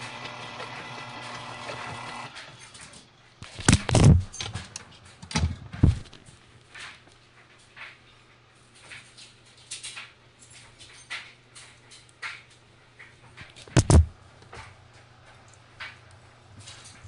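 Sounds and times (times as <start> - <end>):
stand mixer motor running: 0.0 - 2.4
knocks and thumps from handling: 13.6 - 14.7.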